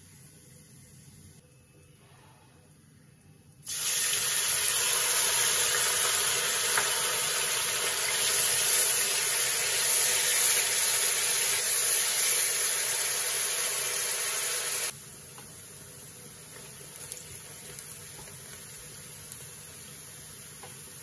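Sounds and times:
onion sizzling in hot oil: 0:03.6 - 0:21.0.

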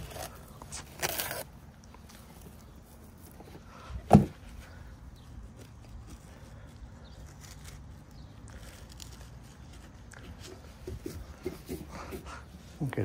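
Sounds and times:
dull thump: 0:04.0 - 0:04.4.

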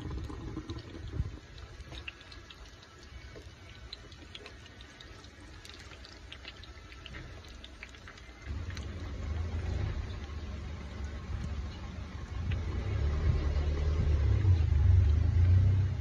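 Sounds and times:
low rumble: 0:08.5 - 0:16.0.

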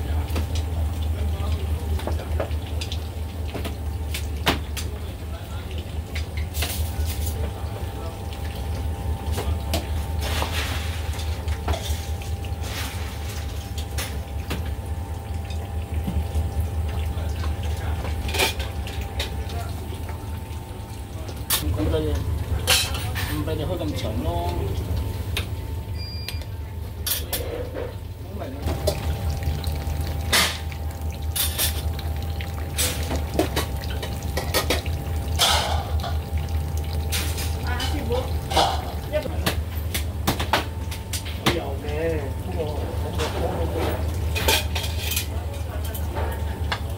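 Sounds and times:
steady low hum: 0:00.0 - 0:45.5
metal utensils and pots clattering: 0:18.0 - 0:19.4, 0:22.6 - 0:24.1, 0:27.0 - 0:28.0, 0:32.7 - 0:36.2, 0:37.0 - 0:39.6, 0:43.2 - 0:46.8.

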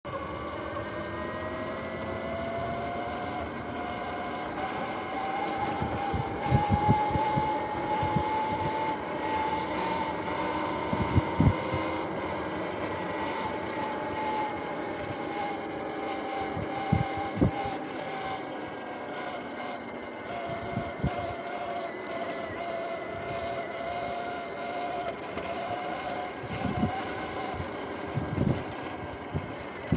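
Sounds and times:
electric motor whining: 0:00.1 - 0:29.9
tyre and wind noise: 0:05.6 - 0:08.8, 0:10.8 - 0:12.0, 0:26.2 - 0:29.9.

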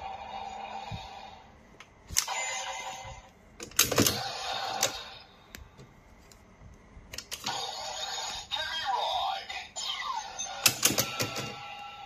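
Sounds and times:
electronic toy sound: 0:07.4 - 0:12.0.

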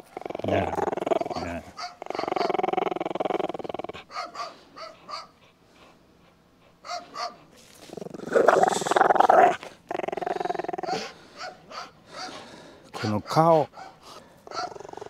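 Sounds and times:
dog growling: 0:00.0 - 0:04.5, 0:07.7 - 0:12.7, 0:14.0 - 0:15.0.

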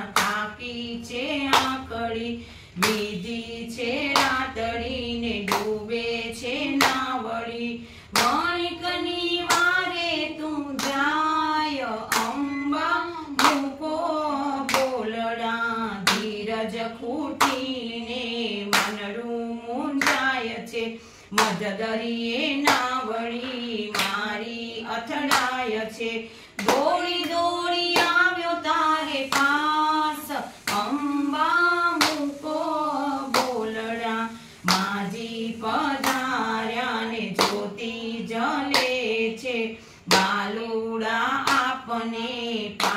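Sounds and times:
women singing devotional song: 0:00.0 - 0:42.9
hands clapping in time: 0:05.5 - 0:05.8, 0:12.1 - 0:12.5, 0:13.3 - 0:13.7.

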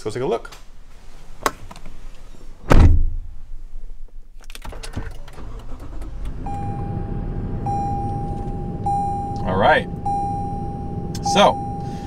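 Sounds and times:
car door shutting: 0:04.7 - 0:12.0
electronic beep tone: 0:06.4 - 0:12.0.

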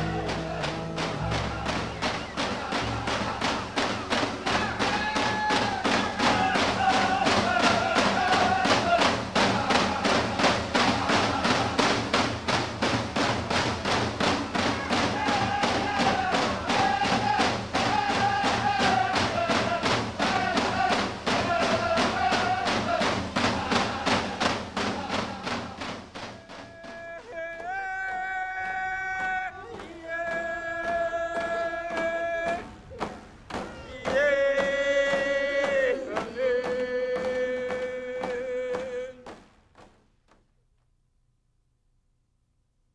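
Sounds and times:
chanted singing: 0:00.0 - 0:12.1, 0:14.3 - 0:39.2
drum beating fast pulse: 0:00.0 - 0:27.8.

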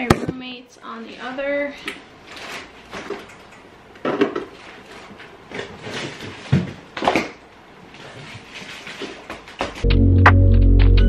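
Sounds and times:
packaging rustling: 0:02.2 - 0:03.3.

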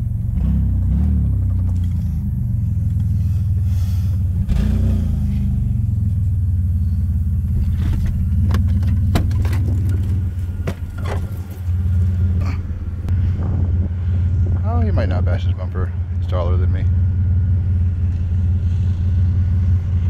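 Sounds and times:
off-road vehicle engine droning: 0:00.0 - 0:20.0
sharp knocks and rattles: 0:07.5 - 0:11.9.

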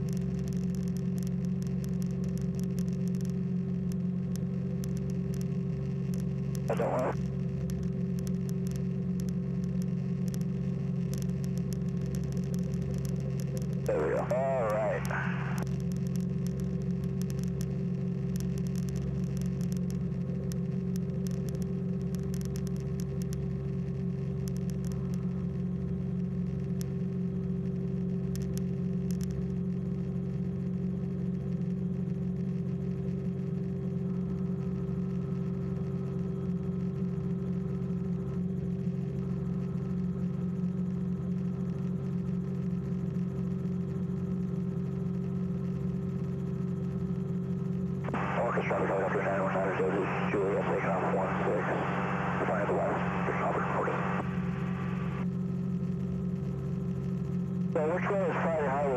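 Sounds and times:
aircraft engine droning: 0:48.1 - 0:55.2, 0:57.8 - 0:58.9.

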